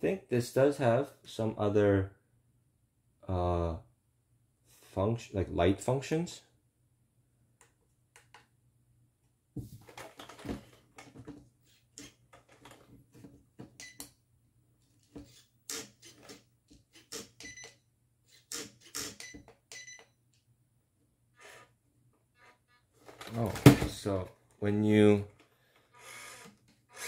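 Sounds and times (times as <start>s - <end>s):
speed controller clicks and tones: 18.5s - 20.2s
small motor and gearbox whirring: 25.9s - 27.0s.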